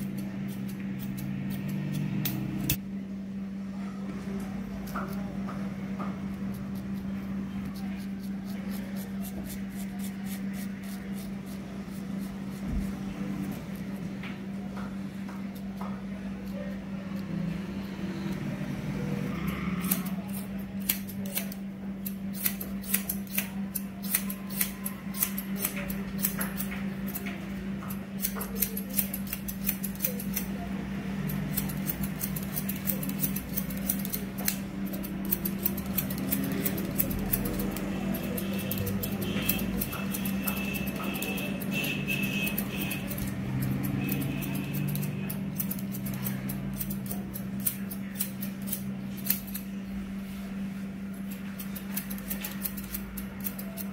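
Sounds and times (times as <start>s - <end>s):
scissors snipping hair: 0.0s - 2.8s, 19.3s - 30.6s, 31.2s - 49.7s, 51.2s - 53.9s.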